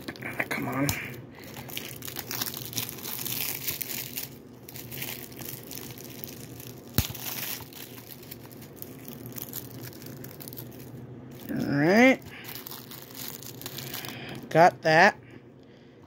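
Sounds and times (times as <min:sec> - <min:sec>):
plastic wrap crinkling: 0:00.0 - 0:14.5.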